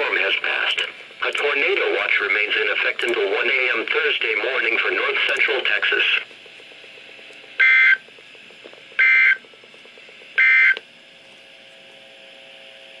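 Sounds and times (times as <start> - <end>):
short bursts of data tones: 7.6 - 8.1, 9.0 - 9.4, 10.4 - 10.8.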